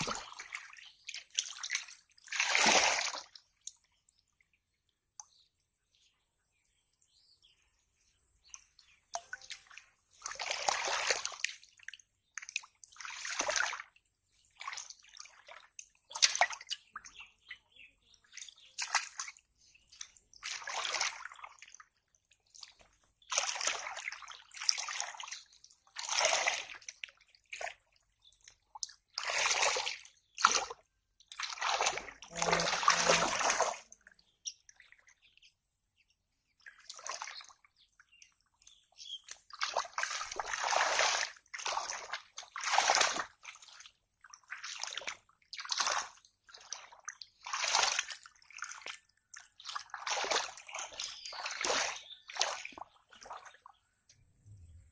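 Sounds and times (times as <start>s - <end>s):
hands splashing in muddy water: 0.0s - 3.8s, 9.1s - 17.4s, 18.2s - 34.0s, 39.2s - 53.8s.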